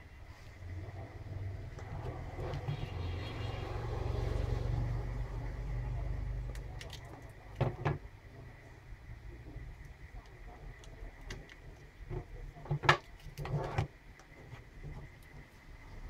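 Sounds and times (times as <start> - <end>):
rustling and light clatter: 10.5 - 16.0.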